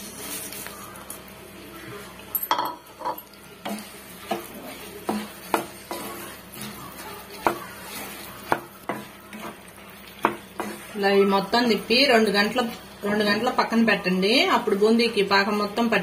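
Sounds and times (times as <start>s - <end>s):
wooden spatula scraping a pan: 3.7s - 12.0s.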